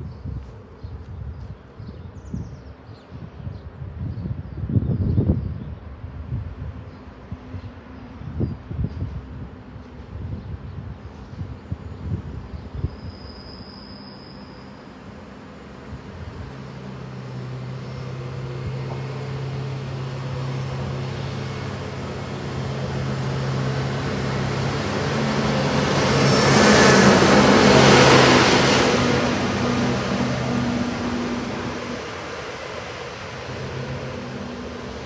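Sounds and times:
wheel and rail noise: 0:13.1 - 0:35.0
diesel engine drone: 0:15.1 - 0:35.0.

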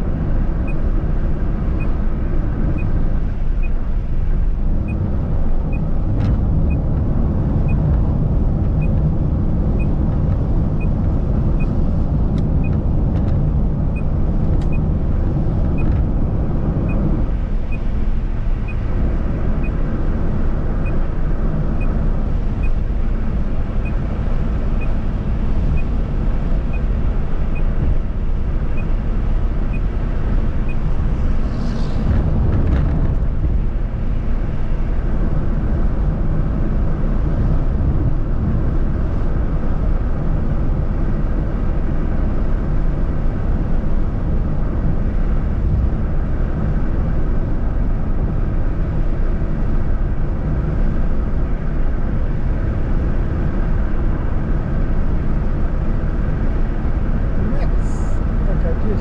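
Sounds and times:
car road and wind noise: 0:00.0 - 0:59.0
brief whoosh: 0:31.3 - 0:32.8.

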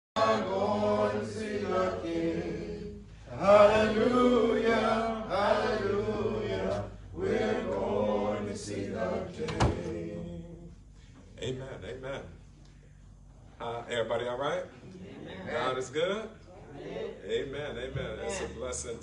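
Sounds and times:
unaccompanied hymn singing: 0:00.2 - 0:12.7.

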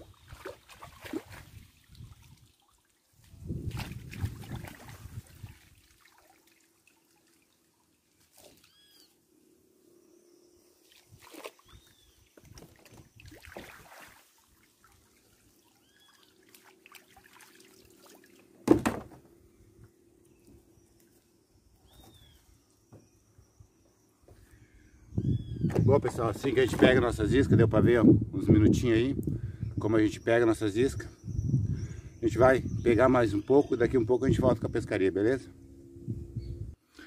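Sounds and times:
river water sloshing and splashing: 0:00.0 - 0:08.9, 0:10.8 - 0:18.6
bird chirping: 0:11.6 - 0:13.3, 0:15.7 - 0:16.4, 0:19.6 - 0:25.8, 0:30.0 - 0:34.6.

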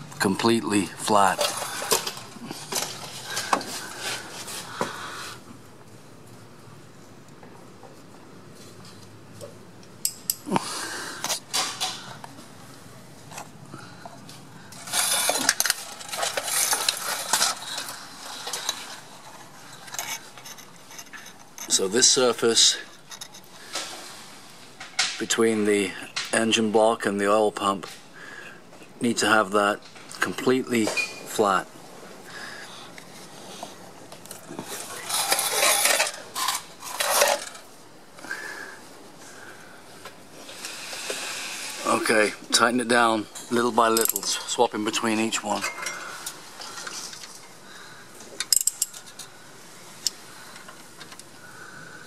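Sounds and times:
metal tools clinking and scraping: 0:00.4 - 0:04.7, 0:14.7 - 0:24.0, 0:30.7 - 0:31.6, 0:34.2 - 0:37.7, 0:41.8 - 0:47.5, 0:48.4 - 0:49.3.

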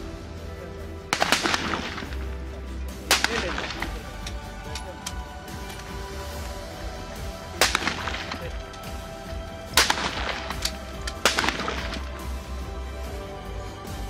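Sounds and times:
rifle shots with echo: 0:01.1 - 0:02.4, 0:03.0 - 0:04.4, 0:07.6 - 0:08.6, 0:09.7 - 0:12.2.

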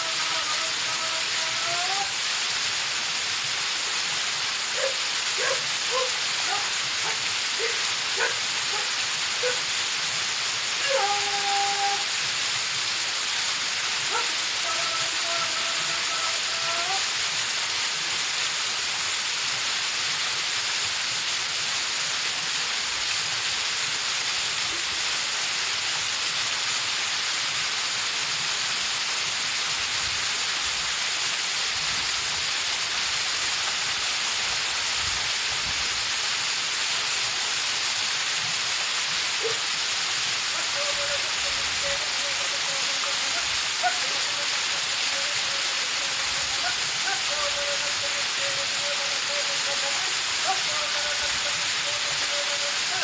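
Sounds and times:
waterfall pouring onto rock: 0:00.0 - 0:53.0.

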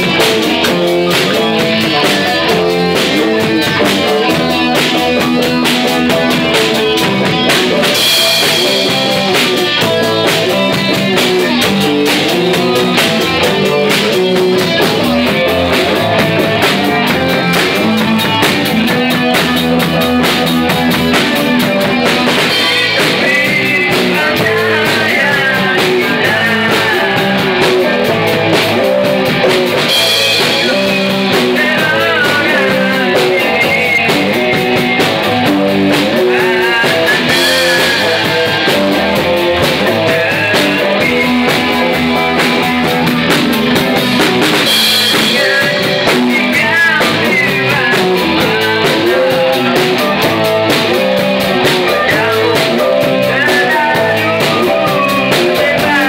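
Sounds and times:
rock band playing: 0:00.0 - 0:56.0
man singing into microphone: 0:21.6 - 0:43.0, 0:44.6 - 0:56.0.

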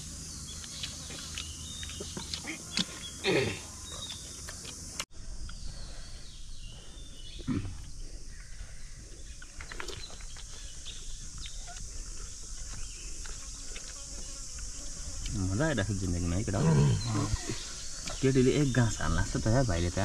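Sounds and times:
insects buzzing: 0:00.0 - 0:20.0.

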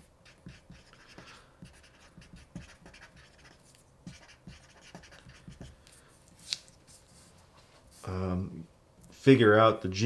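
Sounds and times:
marker scratching on paper: 0:00.0 - 0:05.8.

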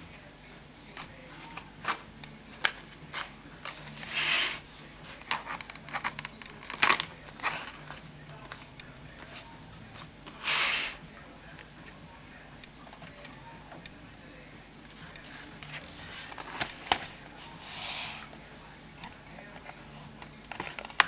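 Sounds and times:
paper swishes: 0:01.0 - 0:05.5, 0:06.6 - 0:11.0, 0:15.1 - 0:19.9
paper crinkling and rustling: 0:01.0 - 0:13.9, 0:14.9 - 0:21.0.

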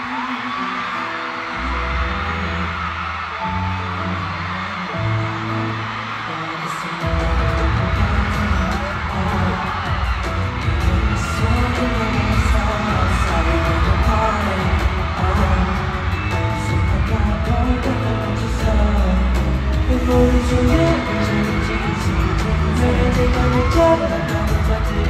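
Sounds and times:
pop song singing: 0:00.0 - 0:25.0
heavy pulsing bass beat: 0:07.1 - 0:25.0.

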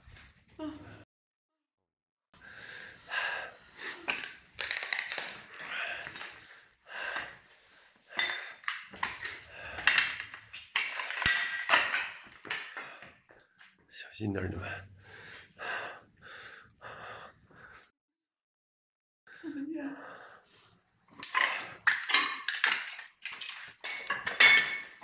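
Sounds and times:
hurried breathing: 0:02.4 - 0:11.5, 0:12.4 - 0:13.6, 0:14.5 - 0:17.9.

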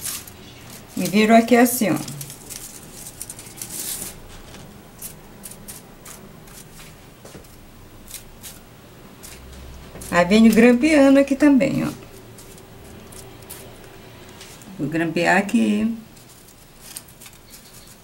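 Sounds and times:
paper strips rustling and crinkling: 0:00.0 - 0:08.6, 0:09.2 - 0:14.8, 0:16.1 - 0:18.0
paper ticking against paper: 0:16.2 - 0:18.0.

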